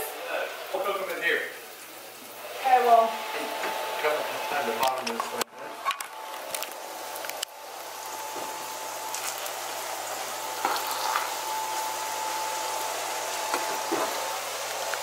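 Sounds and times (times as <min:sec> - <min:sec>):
tofu sizzling in oil: 0:06.8 - 0:11.8.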